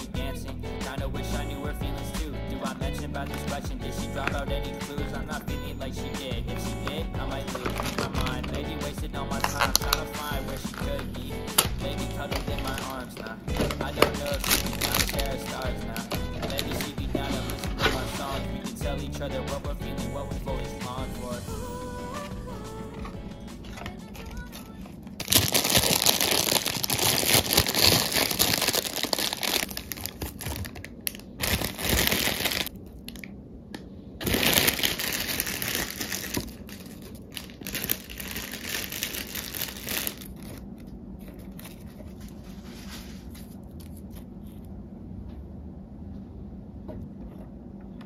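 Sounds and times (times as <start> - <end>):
crinkly wrapping rustling: 6.8 - 8.7, 9.4 - 18.5, 23.6 - 33.2, 34.2 - 44.3.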